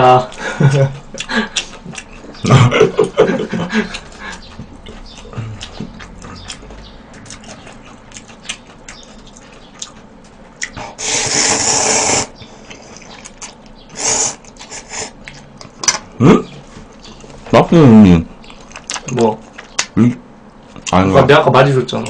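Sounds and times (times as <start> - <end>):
wet chewing and smacking: 1.0 - 10.8, 12.4 - 17.5, 18.4 - 20.0
noodles being slurped: 11.0 - 13.4.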